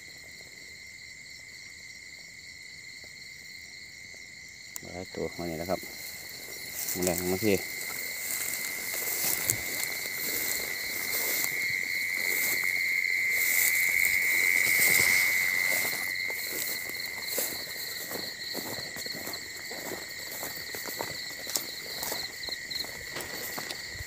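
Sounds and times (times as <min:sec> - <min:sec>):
crickets trilling: 0:00.0 - 0:24.0
footsteps rustling through grass: 0:05.4 - 0:24.0.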